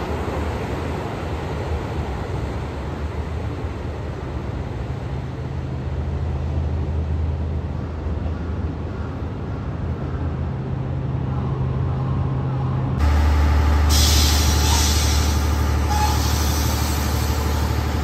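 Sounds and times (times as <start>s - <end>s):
diesel train engine drone: 0.0s - 18.0s
train wheels on rails: 13.0s - 18.0s.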